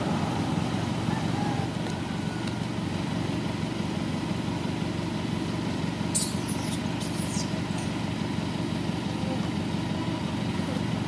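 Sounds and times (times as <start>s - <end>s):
engine idling: 0.0s - 11.0s.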